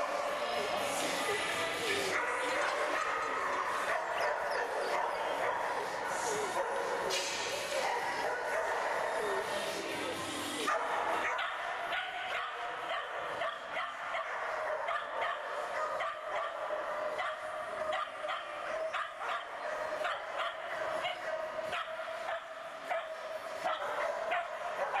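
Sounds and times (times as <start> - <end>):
faint background voices: 0.0 - 25.0
dog barking excitedly: 10.7 - 25.0.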